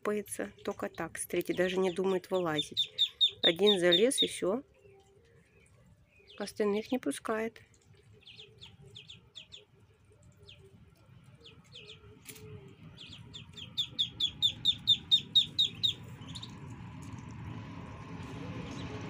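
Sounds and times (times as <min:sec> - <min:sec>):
duckling peeping: 0:00.6 - 0:04.6, 0:08.2 - 0:09.7, 0:10.3 - 0:10.7, 0:11.3 - 0:12.1, 0:12.8 - 0:16.6.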